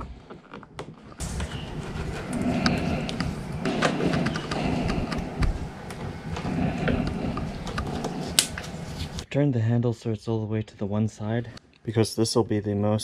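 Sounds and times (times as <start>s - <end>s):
hand-handling rustling rumble: 1.0s - 9.2s.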